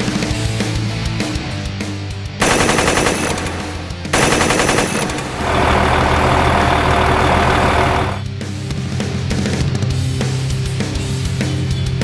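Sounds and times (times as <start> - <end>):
rock music: 0.0 - 2.4, 3.4 - 4.2, 5.1 - 12.0
machine-gun fire: 2.4 - 8.2
vehicle rumble: 5.0 - 8.2.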